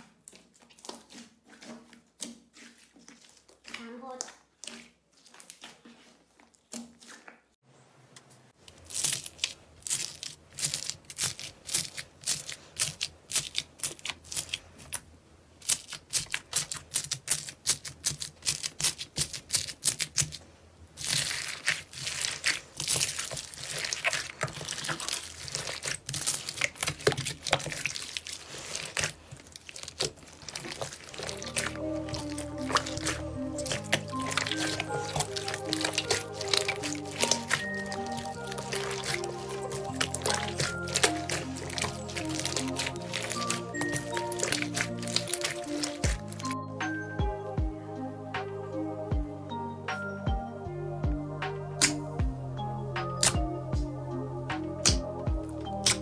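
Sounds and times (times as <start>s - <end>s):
crunchy slime crackling: 8.6s - 46.6s, 54.8s - 56.0s.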